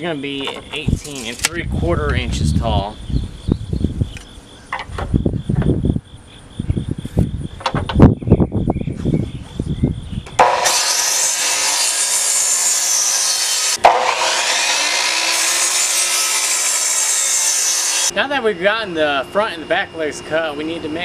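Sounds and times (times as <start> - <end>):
miter saw cutting wood: 10.4 - 18.1.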